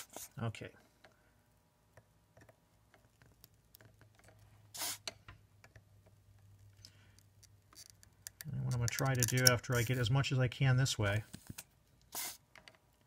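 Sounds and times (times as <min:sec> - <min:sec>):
short hiss: 0:04.7 - 0:05.1, 0:12.1 - 0:12.4.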